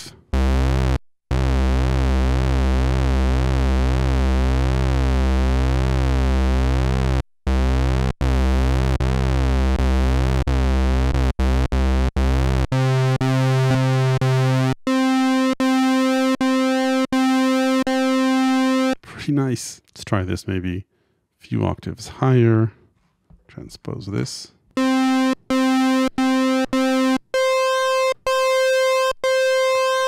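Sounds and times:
pulsing low synthesizer notes: 0:00.0 - 0:19.0, 0:24.8 - 0:30.0.

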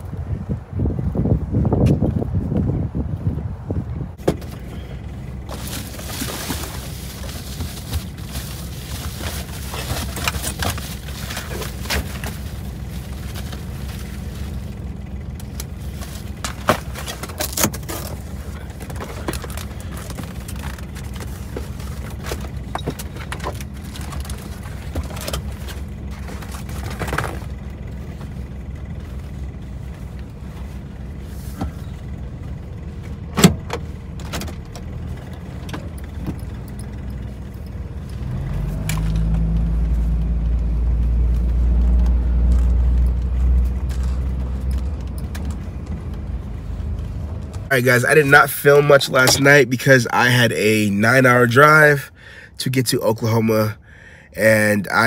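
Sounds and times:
van engine idling: 0:00.0 - 0:55.0
rustles and small clicks: 0:34.2 - 0:47.7.

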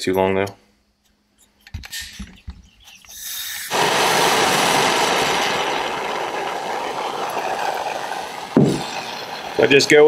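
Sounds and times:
gas hissing: 0:03.1 - 0:10.0
gas torch flame roaring: 0:03.3 - 0:10.0.

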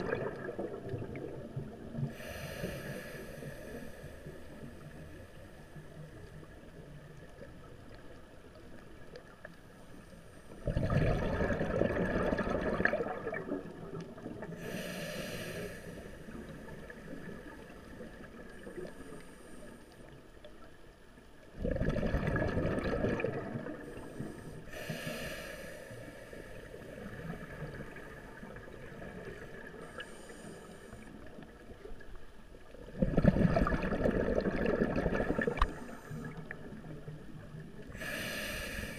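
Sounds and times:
exhaled bubbles underwater: 0:00.0 - 0:03.1, 0:10.6 - 0:14.7, 0:21.4 - 0:24.5, 0:26.6 - 0:30.4, 0:31.1 - 0:38.9
regulator inhalation hiss: 0:02.2 - 0:04.6, 0:14.6 - 0:16.5, 0:24.0 - 0:26.9, 0:38.0 - 0:38.9.

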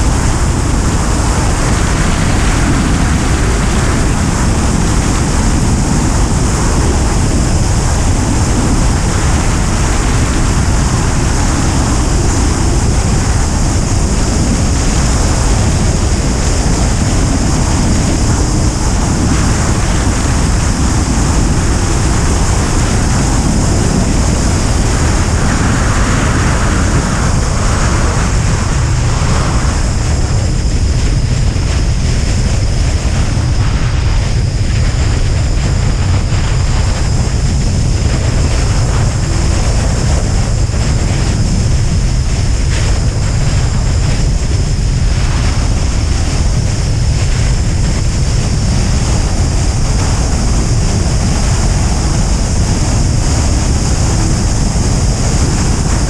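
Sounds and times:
airflow rushing over microphone: 0:00.0 - 0:56.0.

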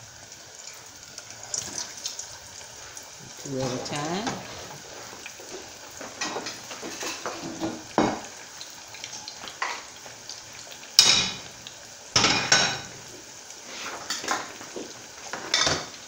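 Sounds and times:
food sizzling in hot oil: 0:00.0 - 0:16.0
utensils and dishes clinking: 0:06.1 - 0:08.2, 0:15.3 - 0:16.0.

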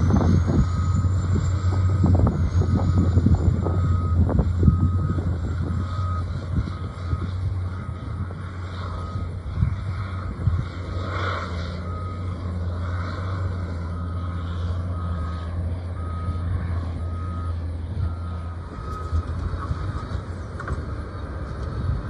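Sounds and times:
heavy machine engine drone: 0:00.0 - 0:22.0.

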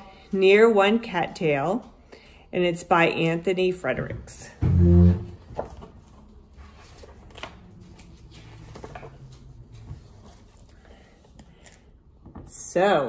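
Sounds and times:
book pages rustling: 0:05.4 - 0:11.9.

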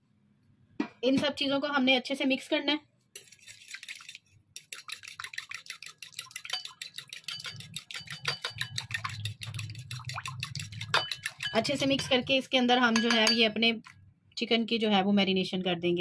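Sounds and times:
utensil scraping against bowl: 0:03.2 - 0:12.3.

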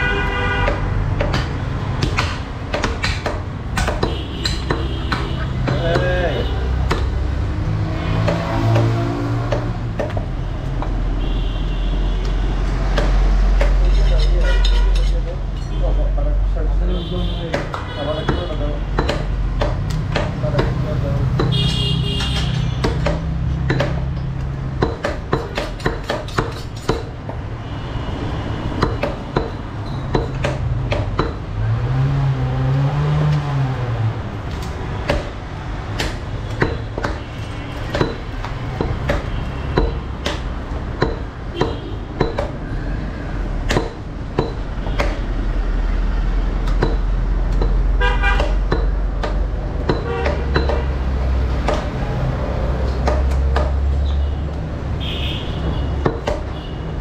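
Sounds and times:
vehicle horn: 0:00.0 - 0:01.0, 0:11.2 - 0:12.3, 0:21.5 - 0:22.8, 0:48.0 - 0:48.6, 0:55.0 - 0:56.9
traffic: 0:00.0 - 0:57.0
knife chopping on wooden block: 0:00.6 - 0:06.2, 0:17.5 - 0:20.8, 0:21.4 - 0:24.2, 0:24.8 - 0:27.2, 0:34.6 - 0:35.4, 0:36.0 - 0:42.6, 0:51.6 - 0:52.0.

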